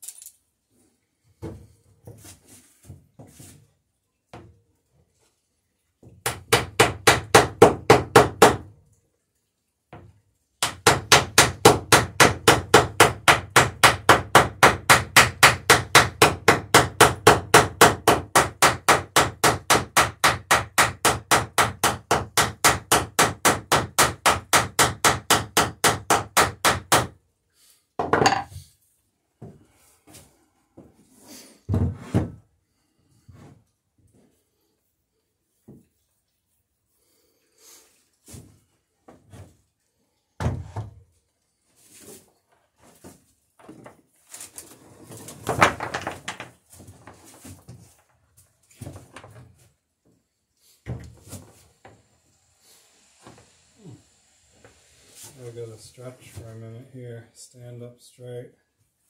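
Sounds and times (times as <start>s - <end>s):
hammer striking rivets in wood: 6.2s - 8.7s, 10.6s - 27.1s, 45.5s - 46.5s.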